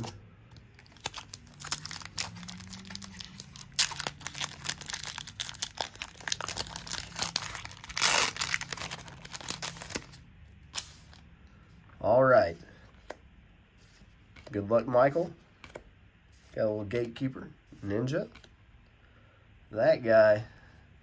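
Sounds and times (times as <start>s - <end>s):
foil wrapper crinkling: 0.8s - 10.1s
foil wrapper ripping: 0.9s - 10.1s.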